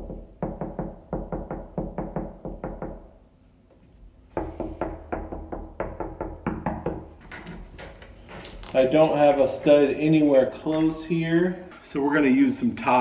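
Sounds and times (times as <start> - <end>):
knuckles knocking on drywall: 0.0 - 3.1, 4.3 - 7.2.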